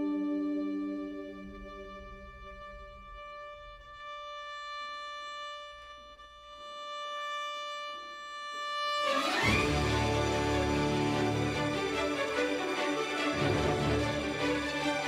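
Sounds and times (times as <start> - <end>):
string orchestra: 0.0 - 5.3, 8.8 - 15.0
violin holding long note: 0.0 - 15.0.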